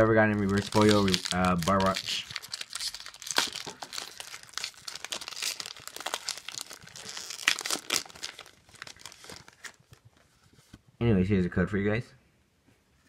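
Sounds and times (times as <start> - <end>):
foil wrapper crinkling: 0.3 - 10.1.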